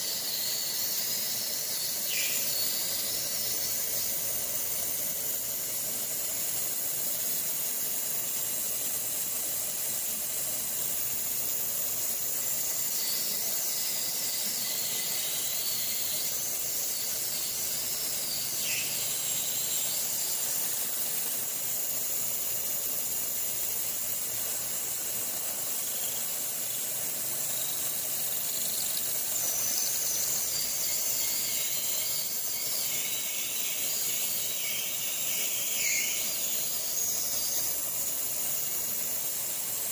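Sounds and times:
high wavering squeal: 0:00.0 - 0:05.6
steady high hiss: 0:00.0 - 0:39.9.

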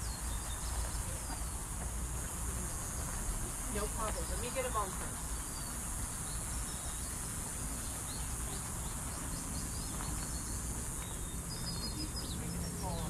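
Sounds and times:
faint bird chirps: 0:03.7 - 0:13.0.

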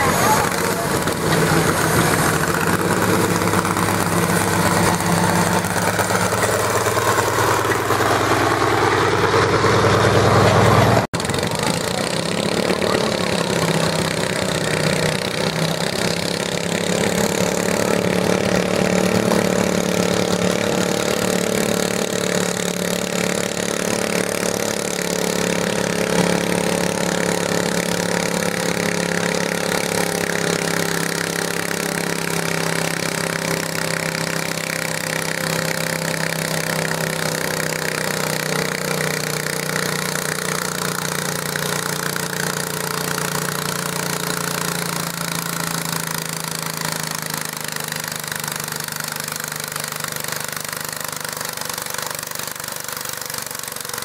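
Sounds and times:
garden tractor engine running: 0:00.0 - 0:54.0.

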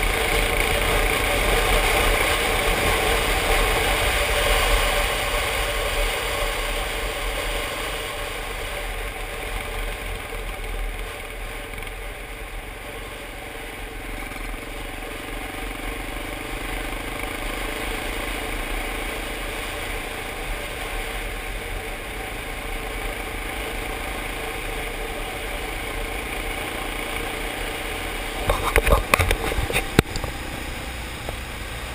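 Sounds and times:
motorcycle engine running: 0:00.0 - 0:31.9.

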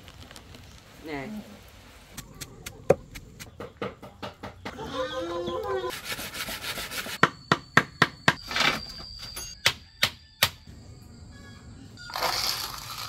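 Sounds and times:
tool knocking on bamboo: 0:02.9 - 0:04.7
chicken calling: 0:04.6 - 0:06.0.

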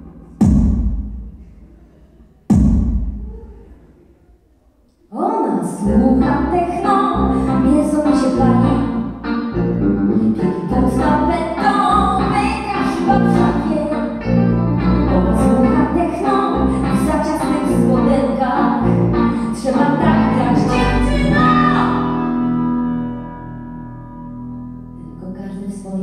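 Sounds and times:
sharp drum hits: 0:00.3 - 0:01.5, 0:02.5 - 0:03.4
woman singing: 0:05.1 - 0:09.2, 0:10.2 - 0:23.2
live band playing: 0:07.2 - 0:24.7.

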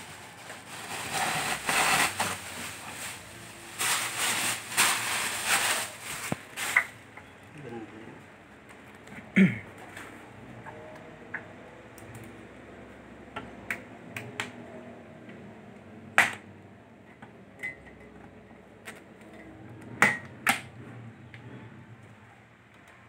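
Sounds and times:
treadmill and packaging being handled: 0:00.0 - 0:07.0.

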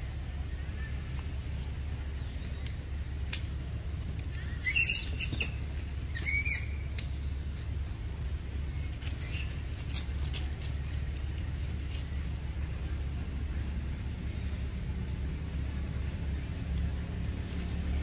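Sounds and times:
steady low rumble: 0:00.0 - 0:18.0
high chirping animal calls: 0:04.4 - 0:07.0.

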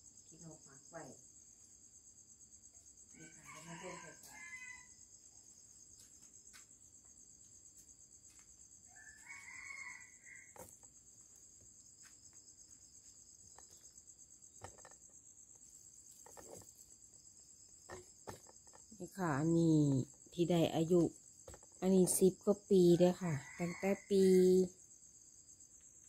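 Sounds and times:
crickets trilling: 0:00.0 - 0:26.0
rooster crowing: 0:03.2 - 0:05.0, 0:08.8 - 0:10.6, 0:23.0 - 0:24.2.

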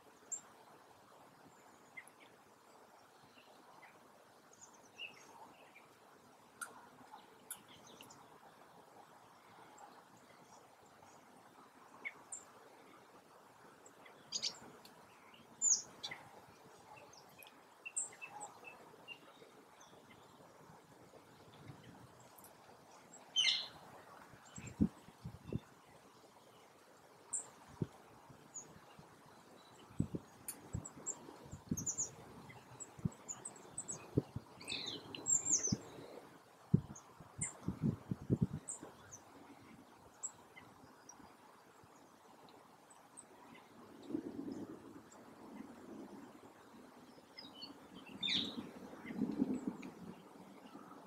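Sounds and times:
small birds chirping: 0:06.6 - 0:08.4, 0:13.8 - 0:20.5, 0:21.3 - 0:23.8, 0:28.5 - 0:42.1, 0:47.1 - 0:51.0.

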